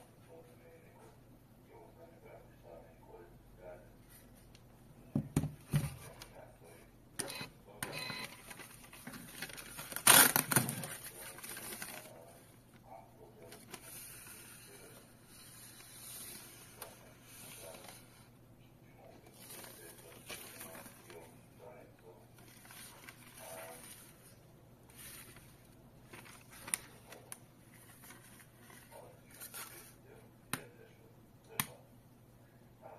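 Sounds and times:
receipt paper rustling: 8.1s - 12.5s, 13.4s - 18.3s, 19.2s - 30.0s
receipt paper clicks and rustles: 8.2s - 12.4s, 19.3s - 21.3s
paper ripping: 8.6s - 12.2s.

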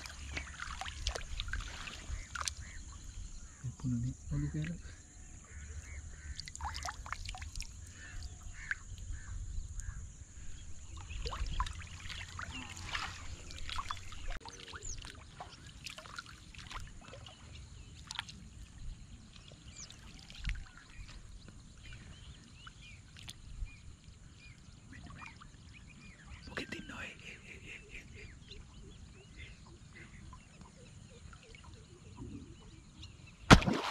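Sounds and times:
shallow water splashing: 0.0s - 3.6s, 5.9s - 9.3s, 10.8s - 23.5s, 33.4s - 33.9s.

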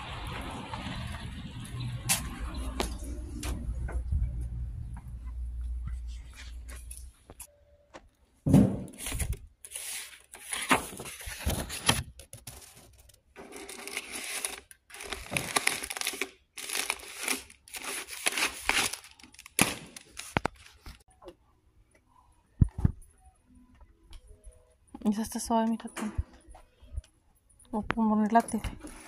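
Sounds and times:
paper mail rustling: 9.0s - 21.0s.

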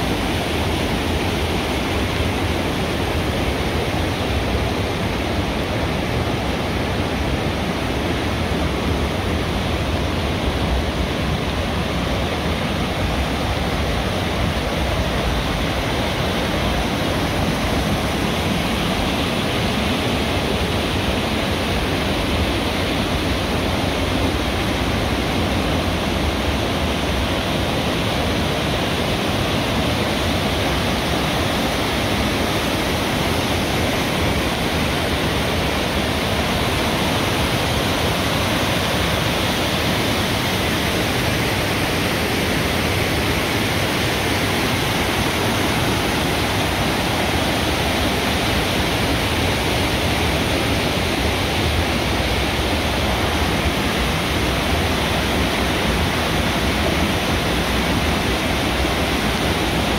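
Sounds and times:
waterfall rushing: 0.0s - 59.9s.

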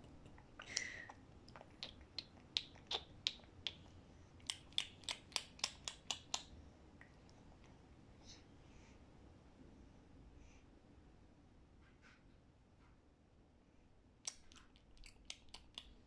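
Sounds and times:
mouth clicks: 0.3s - 7.2s, 14.2s - 16.0s.

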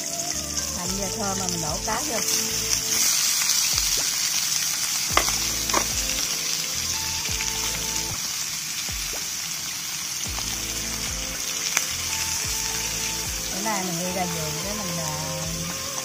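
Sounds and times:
fish sizzling in hot oil: 0.0s - 16.0s
chopsticks clicking on wok: 5.1s - 6.0s.

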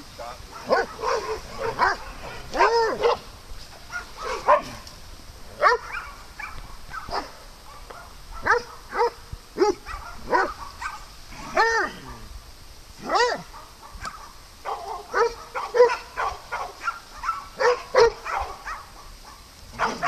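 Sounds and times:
dog barking: 0.5s - 3.3s, 3.9s - 4.8s, 5.6s - 12.3s, 13.0s - 20.0s.

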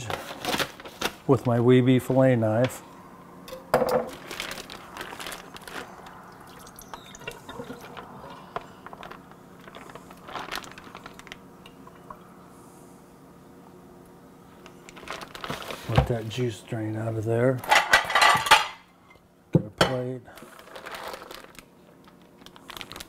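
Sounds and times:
plastic bag crinkling: 0.0s - 2.2s, 4.0s - 12.0s, 14.6s - 16.4s, 20.4s - 23.0s
juice dripping: 4.2s - 12.5s.

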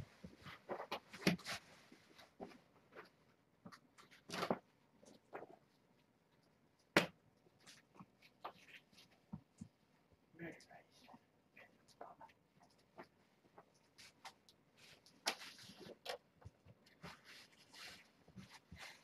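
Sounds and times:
rustling of handled objects: 0.0s - 19.0s
scrape: 17.0s - 19.0s.

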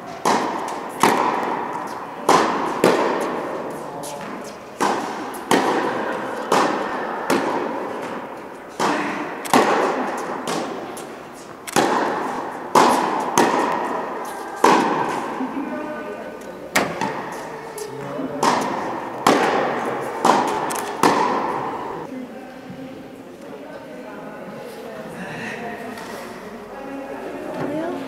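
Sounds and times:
ball bouncing on court: 0.0s - 15.6s, 16.7s - 22.1s
rackets striking tennis ball: 0.0s - 22.1s.

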